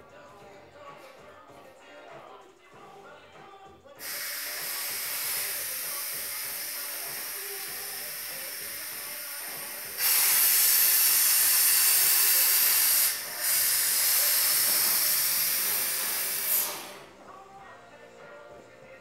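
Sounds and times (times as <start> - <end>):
air suspension hissing: 4.0 - 17.2.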